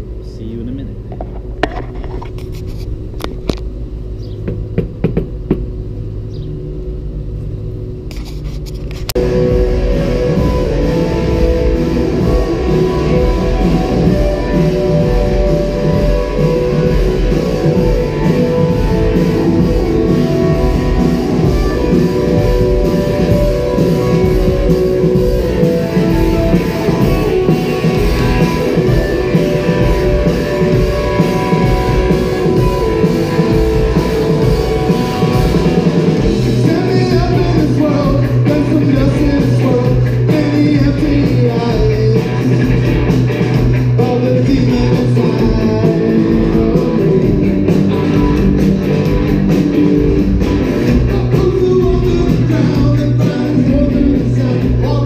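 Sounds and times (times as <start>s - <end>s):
held low guitar note: 9.2s - 38.4s
rock music with singing: 9.2s - 55.0s.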